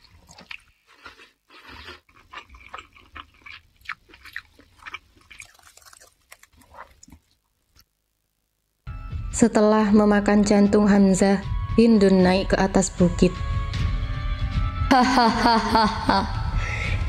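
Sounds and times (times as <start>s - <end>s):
wet crunchy chewing: 0.0s - 7.4s.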